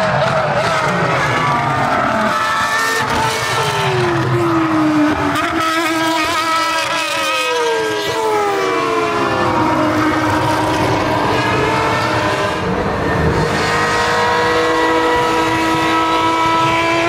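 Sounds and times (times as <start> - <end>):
racing car engines passing: 0.0 - 17.0.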